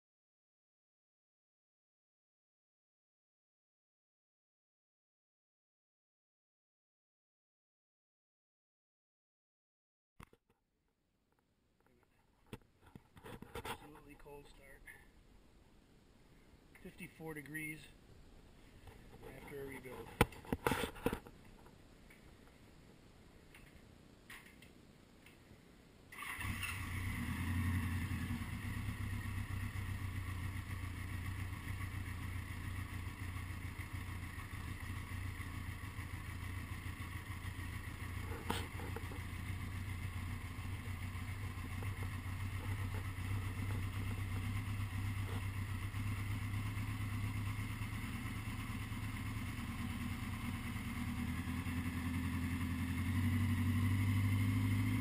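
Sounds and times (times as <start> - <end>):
motorcycle engine idling: 26.2 - 55.0.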